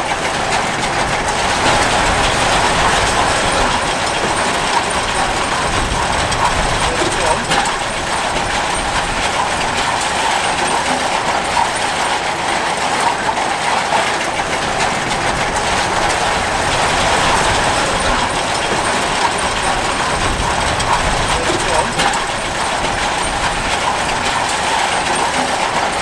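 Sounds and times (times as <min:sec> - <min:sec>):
harvester chains clattering: 0:00.0 - 0:26.0
diesel tractor engine running: 0:00.1 - 0:11.8, 0:14.4 - 0:25.2.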